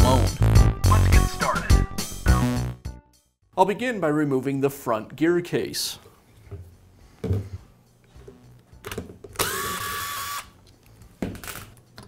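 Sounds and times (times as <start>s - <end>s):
power driver whining: 9.4s - 10.5s.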